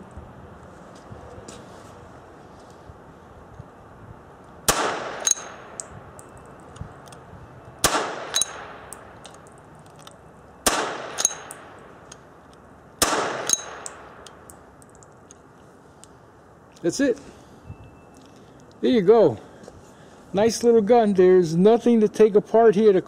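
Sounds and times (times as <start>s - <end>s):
blank pistol shots echoing: 4.7s - 5.8s, 7.8s - 9.0s, 10.6s - 11.8s, 13.0s - 14.2s.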